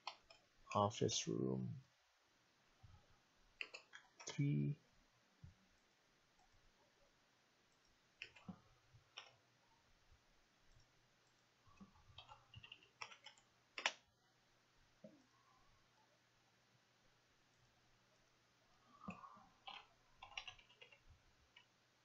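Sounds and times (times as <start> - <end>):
computer mouse clicks: 0.0 - 0.4, 3.6 - 4.4, 8.2 - 9.4, 11.8 - 14.0, 19.0 - 21.7.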